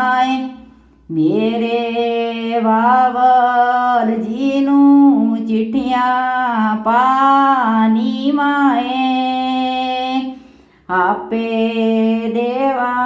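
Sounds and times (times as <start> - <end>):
woman singing folk song: 0.0 - 13.0.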